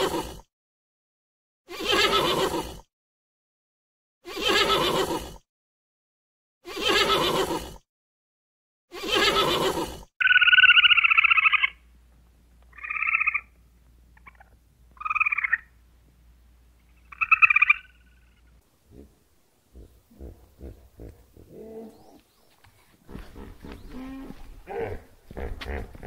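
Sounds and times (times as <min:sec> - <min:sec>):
horse whinnying: 0:01.7 - 0:02.8, 0:04.3 - 0:05.3, 0:06.7 - 0:07.8, 0:08.9 - 0:10.0
squirrel trilled calls: 0:10.2 - 0:11.8, 0:12.7 - 0:13.5, 0:14.2 - 0:15.7, 0:16.9 - 0:18.5.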